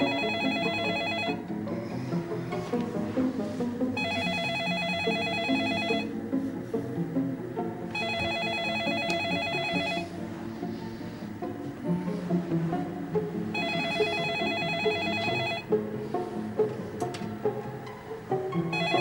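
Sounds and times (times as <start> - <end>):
telephone ringing: 0.0 - 1.4, 4.0 - 6.1, 7.9 - 10.1, 13.5 - 15.7, 18.7 - 19.0
background music: 0.0 - 19.0.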